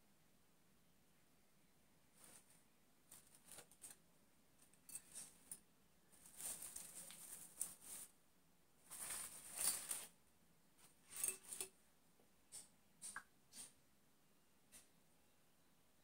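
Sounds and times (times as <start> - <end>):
artificial flower stems rustling: 2.1 - 8.2, 8.8 - 10.2, 10.8 - 11.8.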